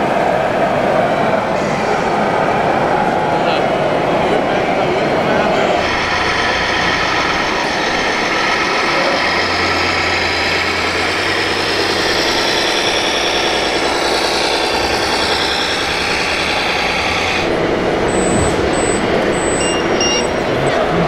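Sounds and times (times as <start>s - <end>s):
low hum: 5.7s - 21.0s
model tractor running: 5.7s - 21.0s
short high beeps: 18.1s - 20.4s.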